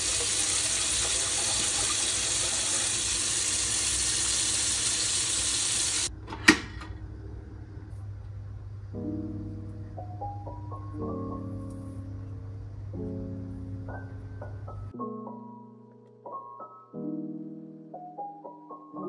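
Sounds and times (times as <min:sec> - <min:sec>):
gentle piano music: 0:07.0 - 0:19.0.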